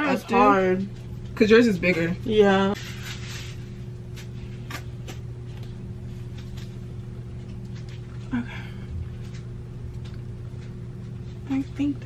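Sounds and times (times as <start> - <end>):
room tone hum: 0.0 - 12.0.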